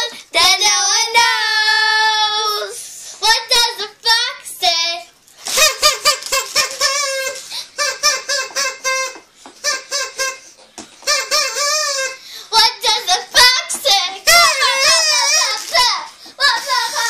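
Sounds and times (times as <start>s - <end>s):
girls singing unaccompanied: 0.0s - 4.3s, 12.6s - 17.0s.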